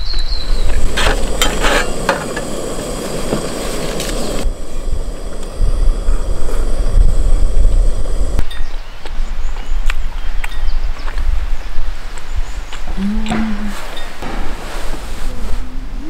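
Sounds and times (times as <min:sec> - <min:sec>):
hissing background: 0:00.0 - 0:08.4
wind buffeting microphone: 0:00.0 - 0:16.0.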